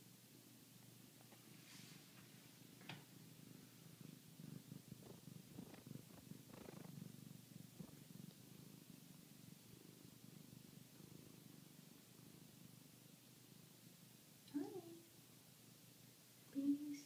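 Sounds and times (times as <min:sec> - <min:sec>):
cat purring: 0:00.0 - 0:17.0
soft clicks and rustles: 0:00.8 - 0:04.0, 0:04.6 - 0:07.1.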